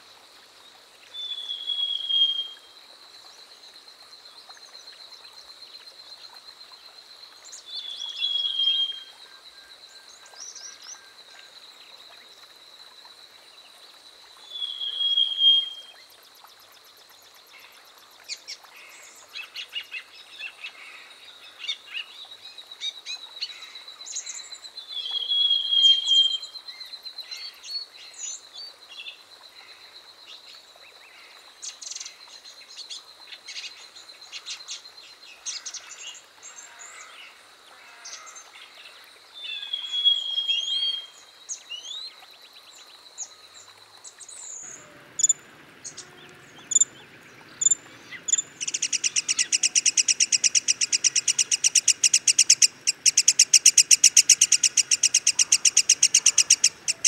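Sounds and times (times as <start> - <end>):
bird whistling phrases: 47.6 - 57.0
short chirps: 47.6 - 57.0.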